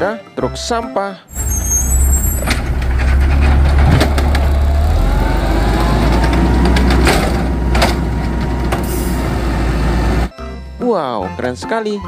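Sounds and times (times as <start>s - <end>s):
garbage truck engine idling: 1.3s - 10.3s
hydraulic arm whine: 1.3s - 10.3s.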